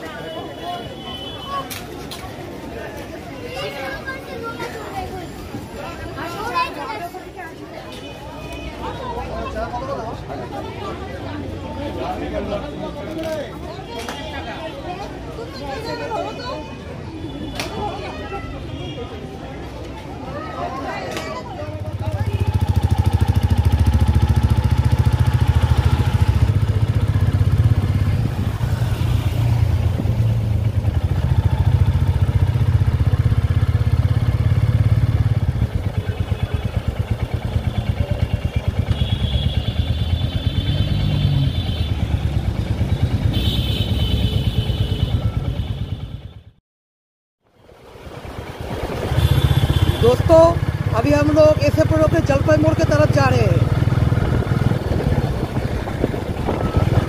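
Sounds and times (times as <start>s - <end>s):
motorcycle engine running: 21.7s - 46.6s, 47.7s - 57.0s.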